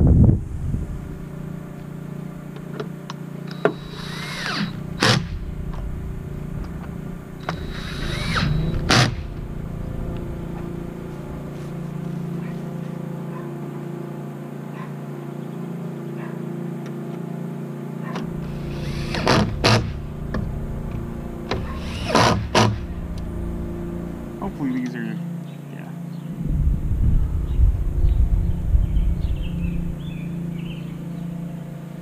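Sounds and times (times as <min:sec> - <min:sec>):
cordless drill motor humming: 0:01.0 - 0:12.9, 0:18.2 - 0:24.1.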